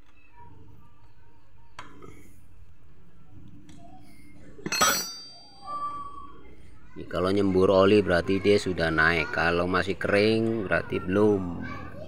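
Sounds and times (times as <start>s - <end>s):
metal clinking on metal: 4.6s - 5.7s.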